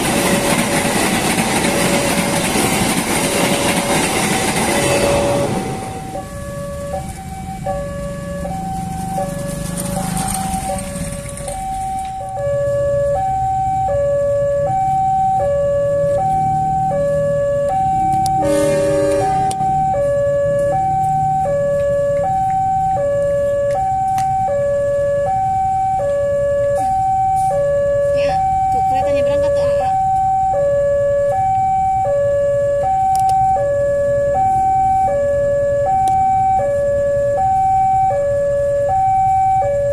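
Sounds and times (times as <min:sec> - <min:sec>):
train rumble: 0:00.0 - 0:13.4, 0:14.3 - 0:24.4
train horn blast: 0:04.6 - 0:06.2, 0:18.4 - 0:19.8
two-note crossing alarm: 0:04.7 - 0:39.9.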